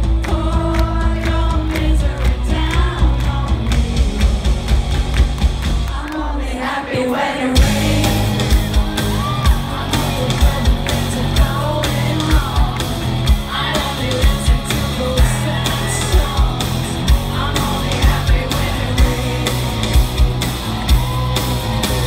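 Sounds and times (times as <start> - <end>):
woman singing: 0.3 - 4.2, 9.2 - 19.8
live rock band playing: 2.6 - 5.9, 7.6 - 22.0
heavy drum hits: 7.6 - 10.1.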